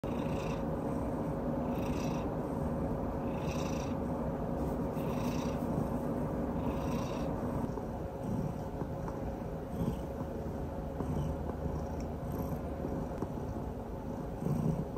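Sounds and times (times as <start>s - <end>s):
cat purring: 0.0s - 14.9s.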